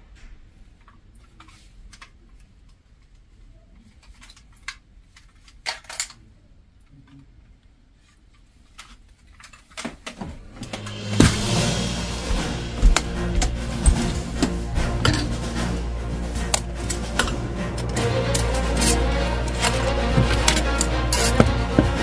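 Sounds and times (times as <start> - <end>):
music: 10.3 - 22.0.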